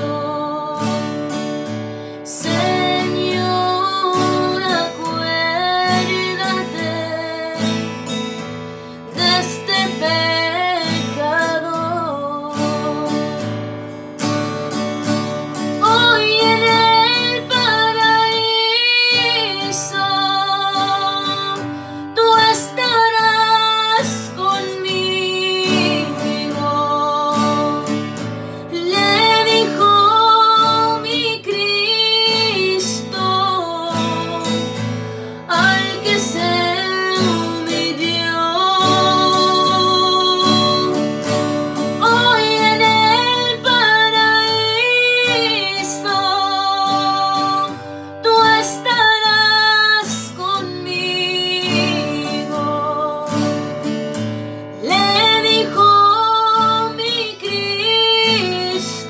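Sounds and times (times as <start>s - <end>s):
acoustic guitar: 0.0s - 59.0s
woman singing: 0.0s - 59.0s.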